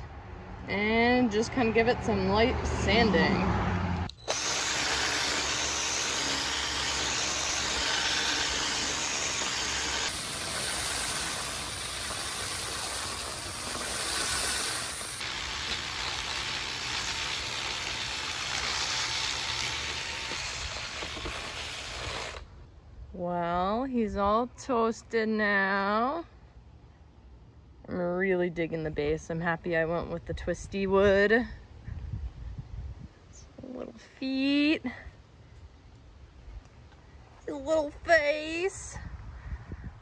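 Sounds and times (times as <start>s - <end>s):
drill with sanding wheel: 4.2s - 22.5s
angle grinder sanding: 4.3s - 22.4s.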